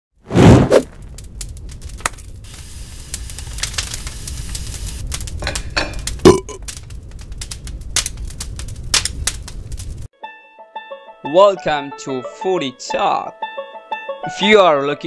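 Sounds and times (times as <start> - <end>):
fire crackling: 0.2 - 10.1.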